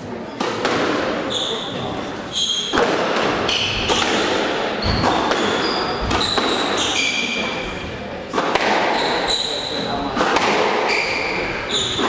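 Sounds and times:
shoes squeaking on wooden floor: 0:01.2 - 0:02.8, 0:04.8 - 0:08.0, 0:08.9 - 0:09.9, 0:10.8 - 0:12.0
ball smacking off racquets and walls: 0:02.7 - 0:06.8, 0:08.3 - 0:09.2, 0:10.1 - 0:11.0.

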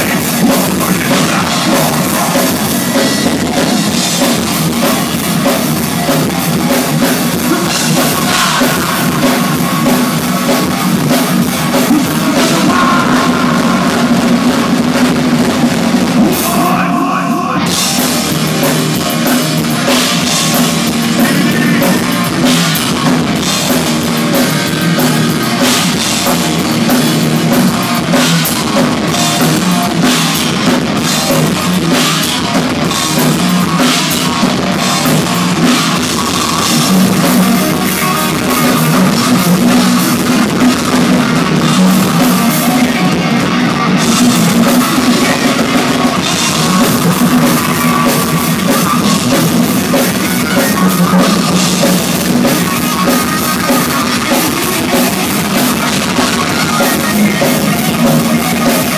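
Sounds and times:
bass guitar: 0:00.0 - 0:58.9
distorted electric guitars: 0:00.0 - 0:58.9
fast drums: 0:00.0 - 0:58.9.

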